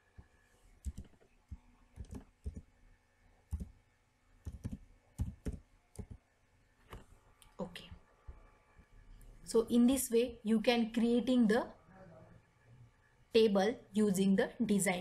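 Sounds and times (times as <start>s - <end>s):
keyboard typing: 0.2s - 2.7s, 3.5s - 3.8s, 4.4s - 6.2s.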